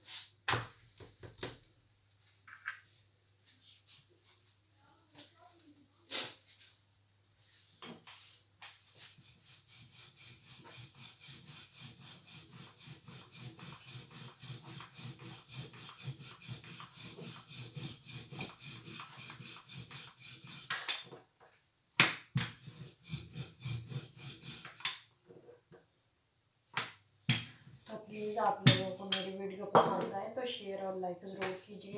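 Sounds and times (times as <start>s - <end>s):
rolling pin rubbing dough: 7.4s - 20.9s, 22.0s - 25.5s, 27.4s - 29.8s.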